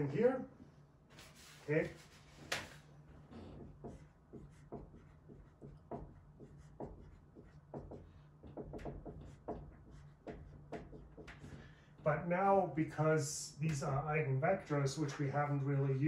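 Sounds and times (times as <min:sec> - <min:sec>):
marker squeaking on whiteboard: 0:01.2 - 0:12.3.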